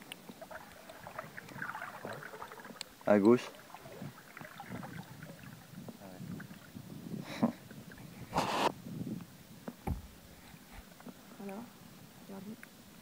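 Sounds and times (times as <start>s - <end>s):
paddle splashing in water: 0.3s - 5.7s.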